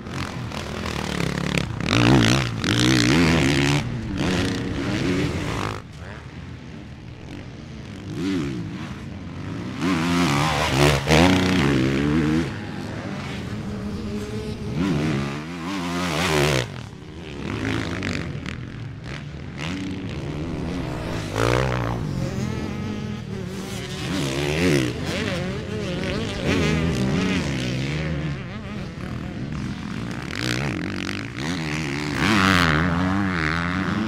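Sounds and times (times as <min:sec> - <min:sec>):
motocross bike engine revving: 0:00.0 - 0:34.0.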